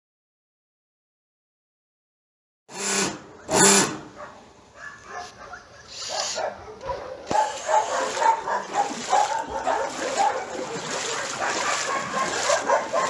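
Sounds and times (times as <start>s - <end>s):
dogs barking: 4.0s - 13.0s.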